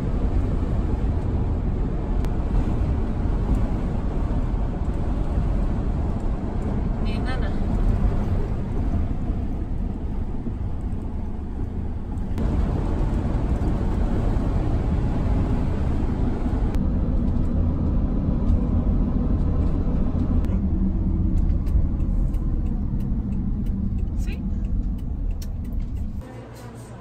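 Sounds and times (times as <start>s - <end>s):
engine and tyre rumble: 0.0s - 27.0s.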